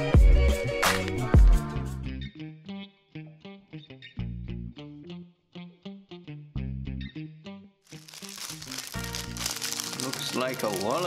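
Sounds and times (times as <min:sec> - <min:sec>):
plucked notes music with bass line: 0:01.4 - 0:07.7.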